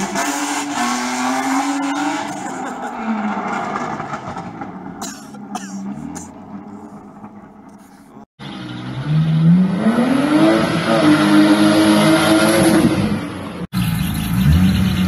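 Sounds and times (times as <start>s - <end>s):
car engine revving hard: 0.0s - 5.0s, 8.5s - 13.2s.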